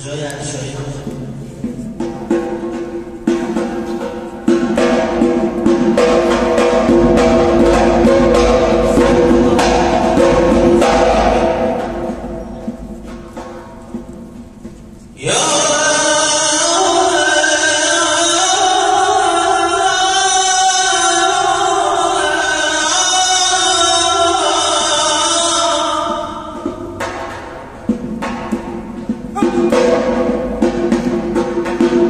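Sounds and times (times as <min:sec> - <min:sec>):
person chanting into a microphone: 0:09.0 - 0:10.6, 0:15.2 - 0:26.6, 0:29.4 - 0:30.0.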